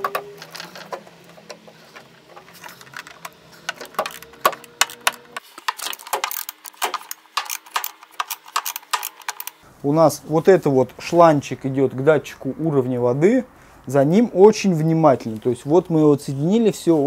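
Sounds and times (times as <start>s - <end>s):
hose clamps clicking and clinking: 0.0s - 9.6s.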